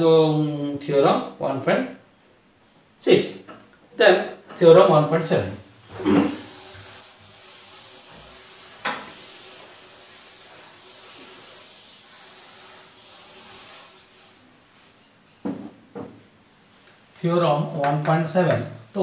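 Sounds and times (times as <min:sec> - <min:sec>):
duster scrubbing a chalkboard: 0:05.2 - 0:15.2.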